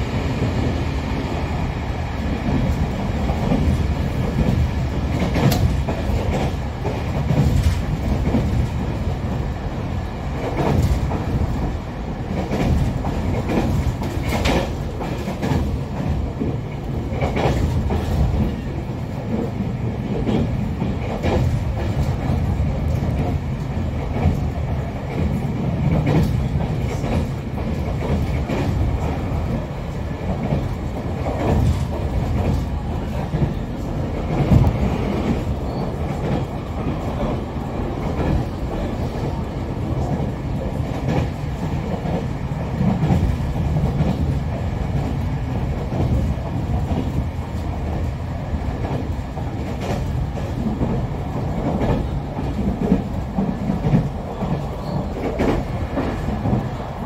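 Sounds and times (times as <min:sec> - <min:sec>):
train wheels rumbling: 0:00.0 - 0:57.0
wheels clacking over rail joints: 0:02.4 - 0:09.3, 0:10.3 - 0:48.1.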